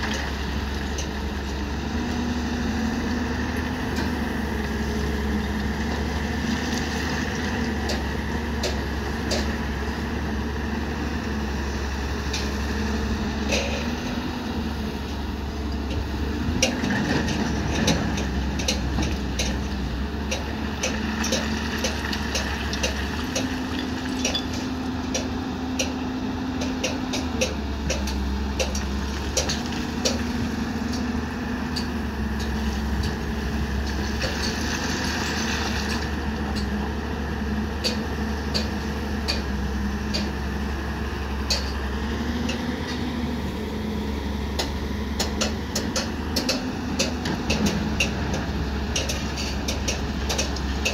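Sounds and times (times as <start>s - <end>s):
excavator diesel engine running: 0.0s - 50.9s
sharp clicks and knocks: 26.6s - 30.3s, 37.8s - 39.5s, 44.6s - 50.9s.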